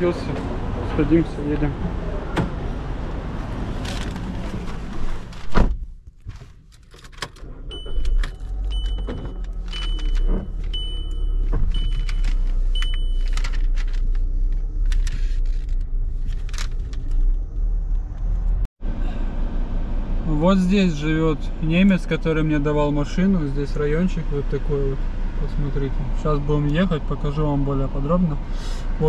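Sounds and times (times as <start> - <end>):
car engine rumbling: 0.0 - 29.0
car door shutting: 3.8 - 13.7
dashboard warning chime: 7.7 - 13.4.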